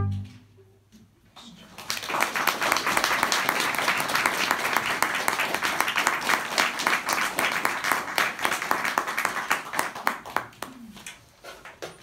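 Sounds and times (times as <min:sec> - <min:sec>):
audience applauding: 0:01.7 - 0:10.8.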